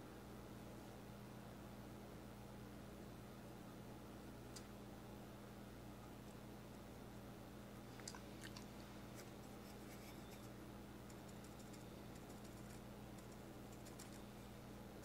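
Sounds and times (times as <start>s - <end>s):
low steady hum: 0.0s - 15.0s
paintbrush scratching on plastic: 9.2s - 10.5s.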